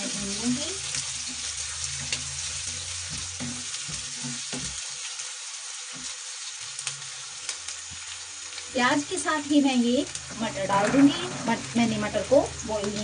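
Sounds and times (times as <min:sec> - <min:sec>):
onions sizzling in oil: 0:00.0 - 0:13.0
wooden spatula scraping: 0:00.9 - 0:05.0, 0:10.3 - 0:13.0.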